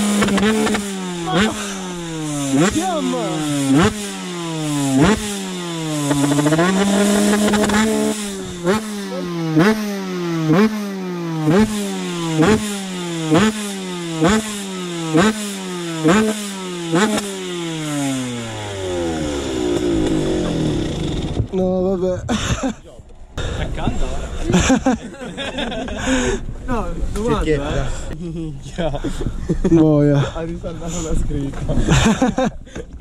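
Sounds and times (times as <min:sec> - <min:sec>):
two-stroke engine revving: 0:00.0 - 0:21.5.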